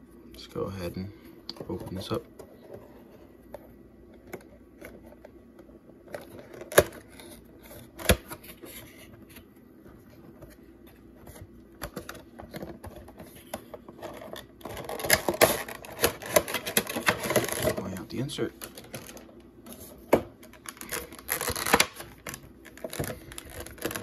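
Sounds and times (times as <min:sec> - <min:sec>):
plastic crackling and rustling: 0:11.2 - 0:24.0.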